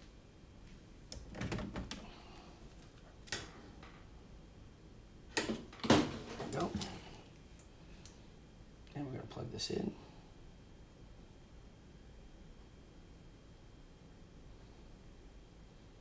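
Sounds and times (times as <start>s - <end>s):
objects knocking and rustling: 5.4s - 7.1s.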